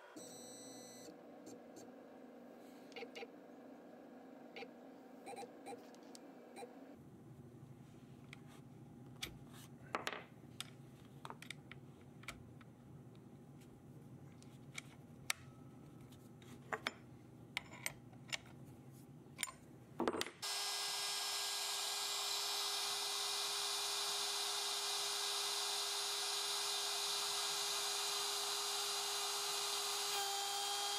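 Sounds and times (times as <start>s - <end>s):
router motor running: 20.4s - 30.9s.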